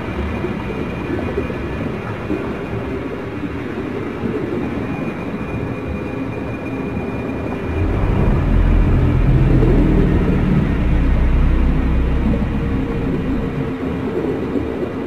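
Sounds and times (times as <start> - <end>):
deep rumbling drone: 7.0 - 15.0.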